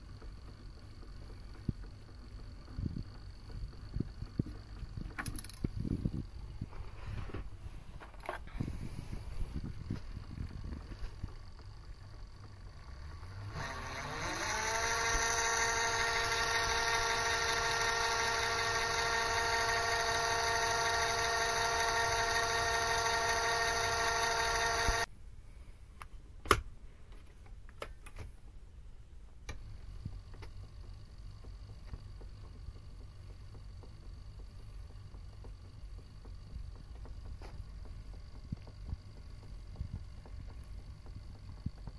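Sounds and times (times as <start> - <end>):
lathe motor whining: 8.5 - 25.1.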